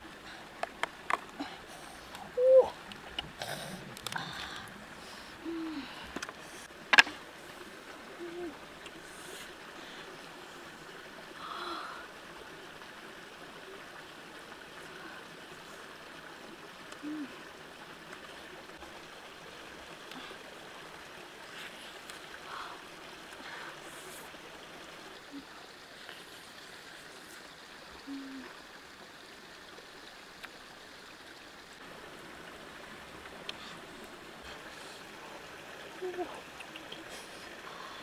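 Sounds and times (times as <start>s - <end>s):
stream running over rocks: 0.0s - 38.0s.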